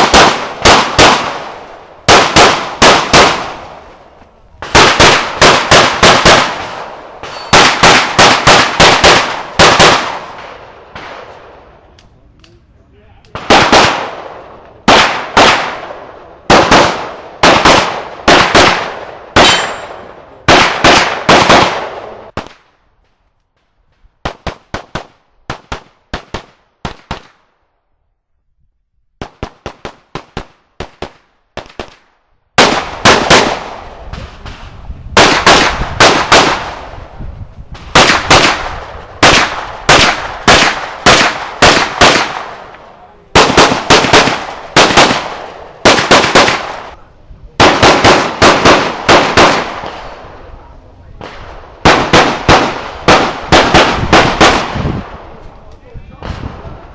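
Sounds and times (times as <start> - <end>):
pistol shots: 0.0 - 3.8, 4.6 - 11.4, 13.3 - 22.6, 32.6 - 33.9, 35.2 - 37.0, 37.8 - 47.0, 47.6 - 50.2, 51.2 - 55.1.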